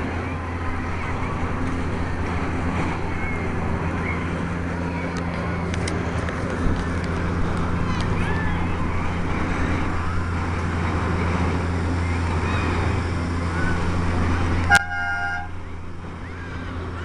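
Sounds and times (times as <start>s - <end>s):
steady low hum: 0.0s - 17.0s
train horn toot: 14.7s - 15.6s.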